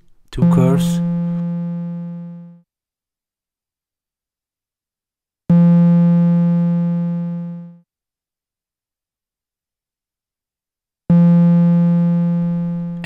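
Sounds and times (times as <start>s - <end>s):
low synthesizer note: 0.4s - 2.6s, 11.2s - 13.0s.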